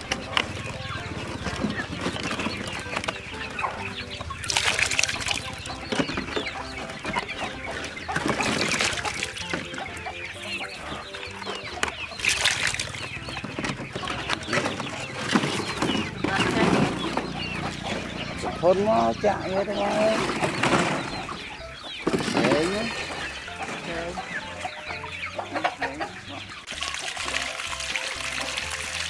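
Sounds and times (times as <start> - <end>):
chickens clucking: 0.0 - 29.0
water splashing into metal basin: 4.3 - 5.9, 8.1 - 10.0, 12.0 - 13.5, 26.7 - 29.0.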